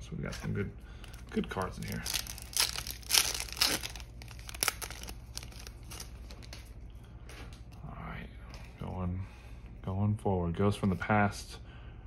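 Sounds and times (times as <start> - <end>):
foil wrapper tearing and crinkling: 1.2 - 6.6.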